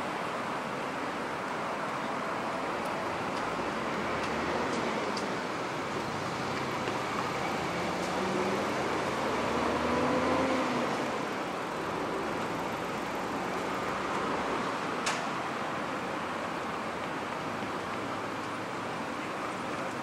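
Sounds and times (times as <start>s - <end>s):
city traffic noise: 0.0s - 20.0s
bus engine pulling away: 2.3s - 15.6s.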